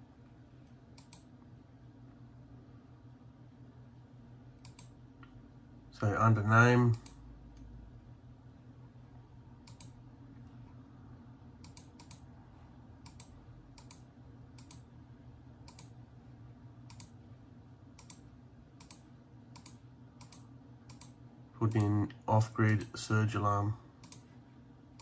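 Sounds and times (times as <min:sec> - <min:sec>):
faint low hum: 0:00.0 - 0:25.0
keyboard typing clicks: 0:00.9 - 0:01.3, 0:04.6 - 0:05.0, 0:09.6 - 0:10.0, 0:11.6 - 0:12.3, 0:13.0 - 0:14.9, 0:15.6 - 0:16.0, 0:16.8 - 0:17.2, 0:17.9 - 0:18.2, 0:18.8 - 0:22.0, 0:24.0 - 0:24.3.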